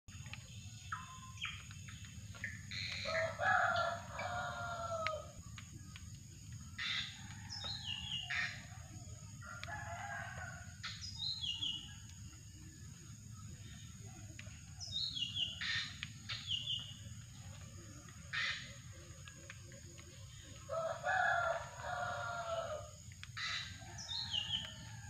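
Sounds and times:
birds whistling calls: 0:02.4 - 0:04.5
rooster crowing: 0:03.0 - 0:05.3, 0:09.4 - 0:10.7, 0:20.7 - 0:22.9.

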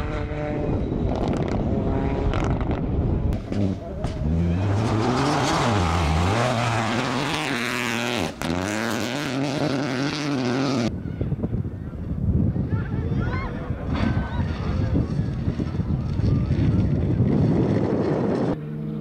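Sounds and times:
rally car engine revving: 0:00.0 - 0:10.9
wind: 0:00.0 - 0:19.0.

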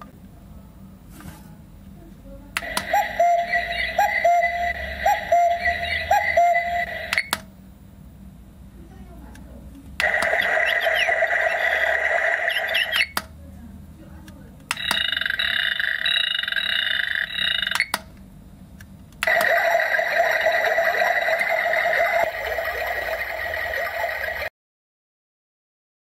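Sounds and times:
nature sounds from small speaker: 0:01.8 - 0:07.9, 0:08.7 - 0:17.9, 0:19.2 - 0:24.5
alarm clock ringing: 0:02.6 - 0:07.1, 0:14.8 - 0:17.8, 0:19.2 - 0:24.5
quick repeated chirps: 0:02.6 - 0:07.3.

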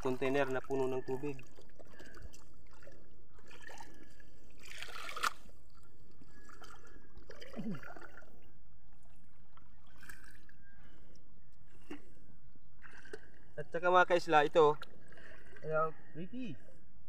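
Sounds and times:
water splash: 0:00.0 - 0:05.6
water trickling and lapping: 0:00.0 - 0:16.9.

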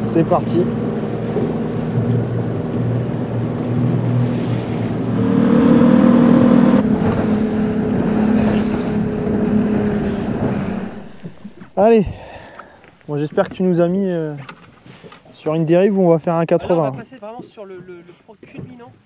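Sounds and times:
outboard motor running: 0:00.0 - 0:12.5.

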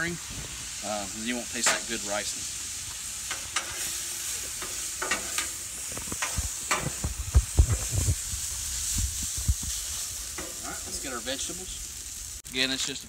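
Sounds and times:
rice sizzling on a griddle: 0:00.0 - 0:13.0
metal spatulas scraping and clacking: 0:04.6 - 0:07.0.

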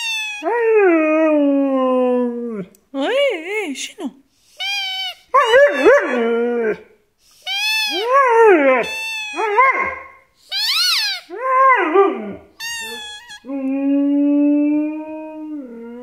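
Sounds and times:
squeaky toy squeaking: 0:00.0 - 0:00.5, 0:04.5 - 0:06.2, 0:07.4 - 0:08.2, 0:08.8 - 0:11.3, 0:12.6 - 0:13.5
dog whining howls: 0:00.0 - 0:02.6, 0:04.6 - 0:06.9, 0:07.5 - 0:16.0.

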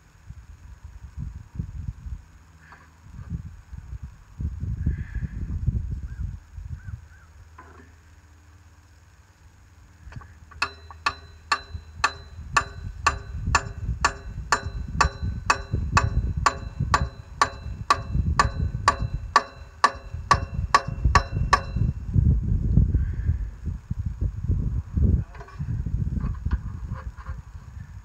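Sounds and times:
metallic taps ringing: 0:10.5 - 0:22.0.

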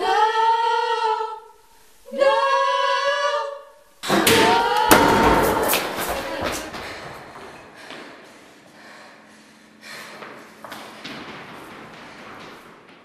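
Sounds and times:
women singing in harmony: 0:00.0 - 0:06.7.

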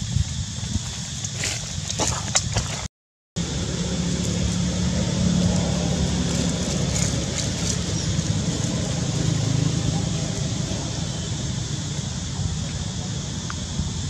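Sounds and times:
vehicle engine running: 0:03.4 - 0:14.0.

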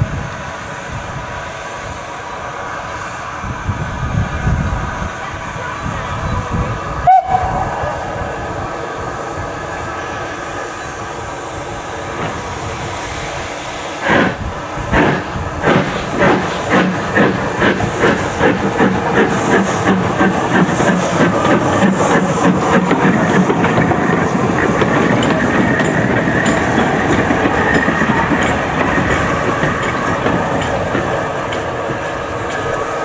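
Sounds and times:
steam locomotive hissing: 0:00.0 - 0:33.0
steam whistle: 0:07.0 - 0:07.9.

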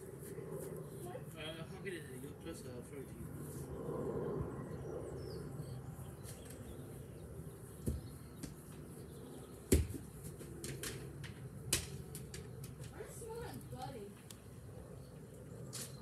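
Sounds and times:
football kick thuds: 0:09.7 - 0:10.0.

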